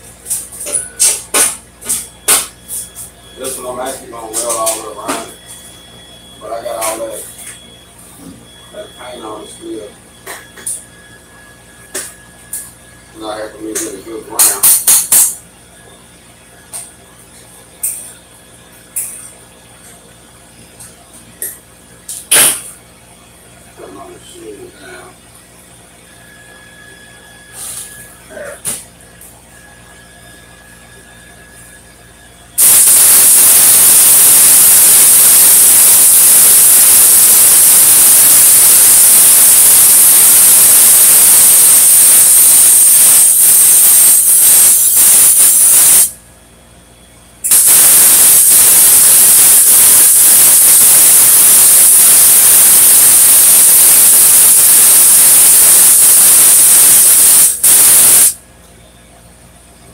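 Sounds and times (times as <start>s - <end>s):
welding arc hissing and crackling: 14.4s - 15.4s, 32.6s - 46.2s, 47.4s - 58.4s.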